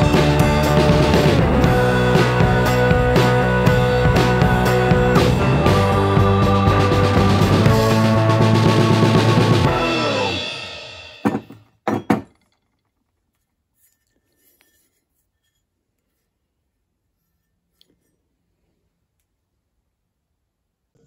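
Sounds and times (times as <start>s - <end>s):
background music: 0.0s - 11.6s.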